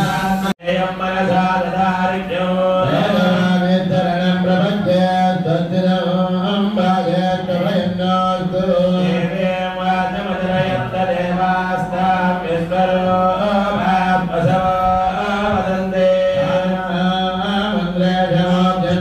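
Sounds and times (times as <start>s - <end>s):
priests chanting into a microphone: 0.0s - 19.0s.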